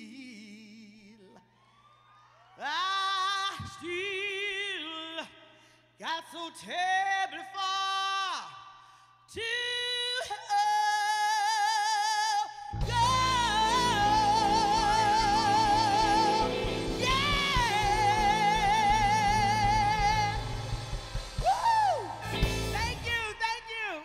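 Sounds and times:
woman singing with vibrato: 0:12.1 - 0:24.0
live band with drums and bass: 0:12.8 - 0:23.4.

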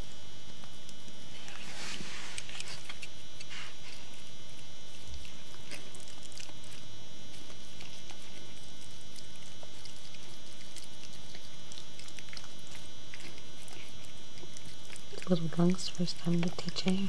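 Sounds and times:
dog licking wetly: 0:07.4 - 0:17.0.

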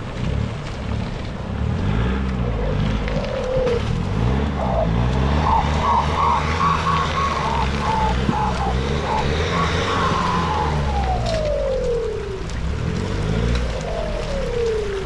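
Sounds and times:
engine revving: 0:00.2 - 0:15.0
high wavering whine: 0:04.9 - 0:15.0.

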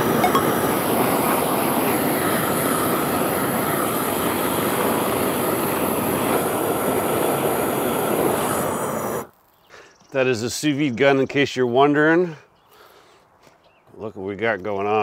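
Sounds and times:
torch flame hissing: 0:00.0 - 0:09.4.

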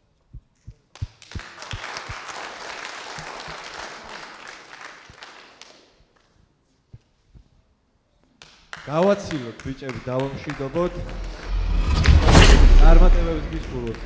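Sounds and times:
audience applauding: 0:01.1 - 0:05.9, 0:08.7 - 0:11.4.

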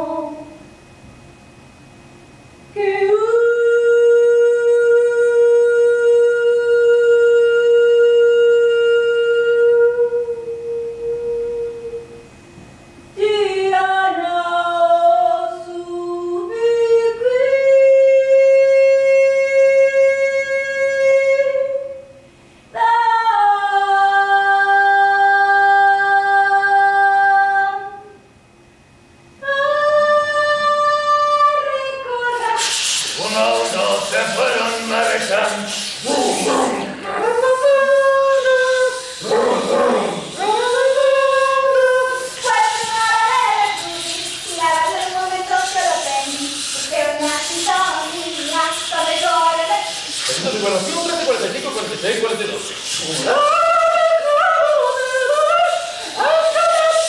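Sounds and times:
person singing unaccompanied: 0:35.9 - 0:50.5, 0:53.0 - 0:57.0.

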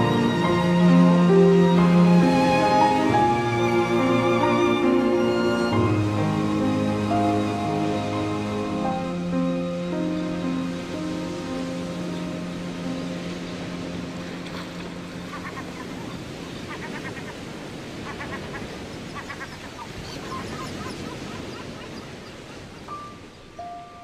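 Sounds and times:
birds honking: 0:05.2 - 0:23.0
held music notes: 0:22.9 - 0:24.0.

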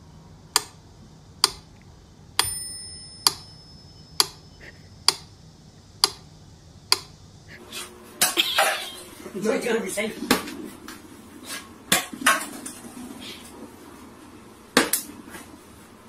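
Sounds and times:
metronome ticking: 0:01.4 - 0:01.7, 0:02.4 - 0:05.3, 0:06.0 - 0:06.2
metronome bell ringing: 0:02.4 - 0:04.5.

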